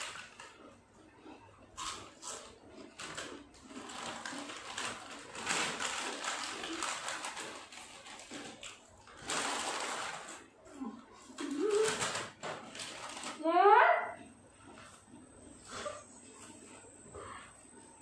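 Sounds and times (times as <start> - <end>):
chips crunching while chewing: 1.8 - 10.4
foil chip packets rustling: 1.8 - 10.5, 11.2 - 13.4.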